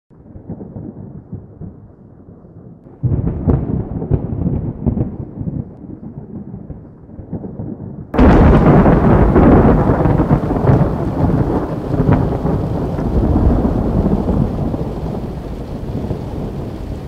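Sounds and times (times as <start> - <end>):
muffled thunder rumbling: 0.2 - 17.0
storm sound: 8.2 - 17.0.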